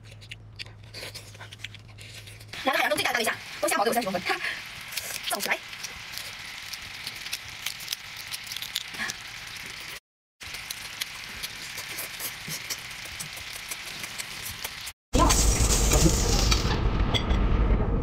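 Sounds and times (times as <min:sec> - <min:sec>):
person chewing: 0:00.0 - 0:02.6, 0:04.8 - 0:14.9
prawn shell cracking and crunching: 0:04.8 - 0:14.9.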